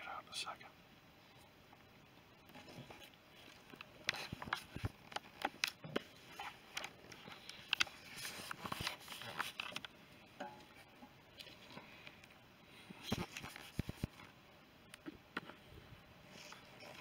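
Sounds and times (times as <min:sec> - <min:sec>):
clicks scrapes and rustles: 0:02.4 - 0:10.0, 0:10.6 - 0:14.4, 0:16.3 - 0:17.0.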